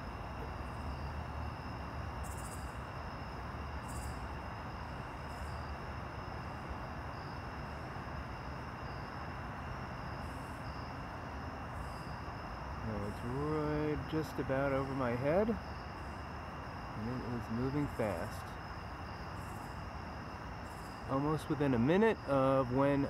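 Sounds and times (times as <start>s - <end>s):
night insects trilling: 0.0s - 23.0s.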